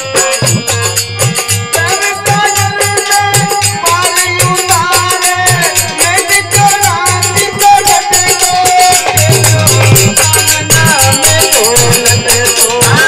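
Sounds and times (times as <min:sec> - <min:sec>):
dholak drum rhythm: 0:00.0 - 0:13.0
held folk melody line: 0:00.0 - 0:13.0.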